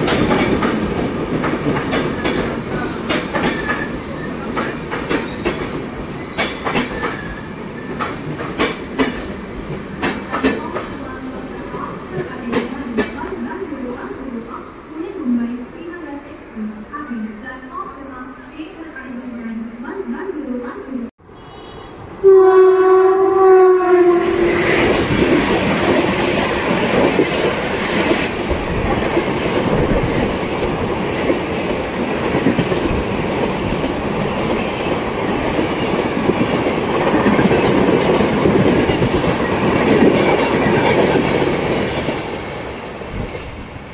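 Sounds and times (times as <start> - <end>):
train wheels clattering on rails: 0.0 - 13.4, 24.4 - 43.6
train horn blast: 21.2 - 25.1.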